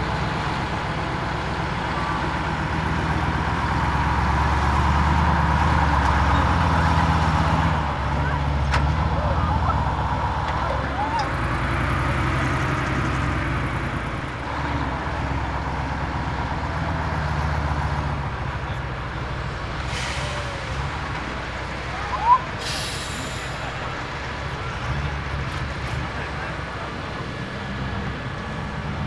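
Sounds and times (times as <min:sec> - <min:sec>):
truck diesel engine running: 0:00.0 - 0:29.0
short air hisses: 0:19.8 - 0:20.9, 0:22.6 - 0:23.8.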